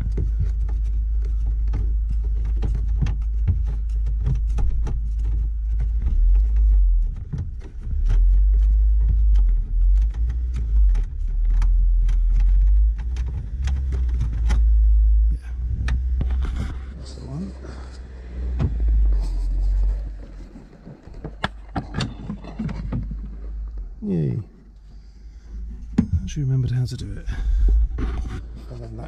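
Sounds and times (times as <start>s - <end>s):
wind rumble on microphone: 0.0s - 23.2s.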